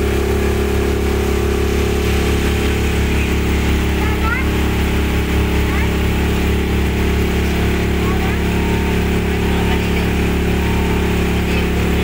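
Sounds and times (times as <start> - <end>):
hull hissing through water: 0.0 - 12.0
motorboat engine humming: 0.0 - 12.0.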